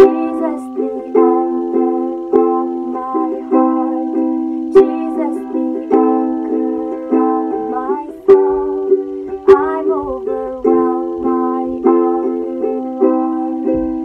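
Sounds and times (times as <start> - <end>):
woman singing worship song: 0.0 - 4.1, 4.7 - 6.0, 7.6 - 12.1
ukulele strumming: 0.0 - 14.0.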